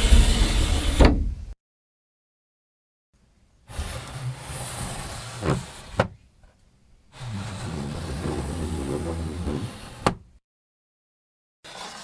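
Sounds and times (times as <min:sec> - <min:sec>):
wooden screen sliding scrape: 0:03.7 - 0:06.2, 0:07.1 - 0:10.2.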